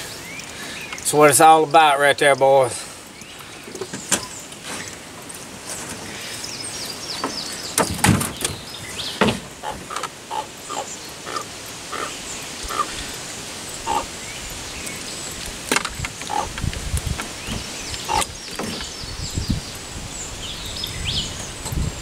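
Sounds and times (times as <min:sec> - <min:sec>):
birds chirping: 0:00.0 - 0:22.0
knocks and thumps in canoe: 0:07.2 - 0:08.6.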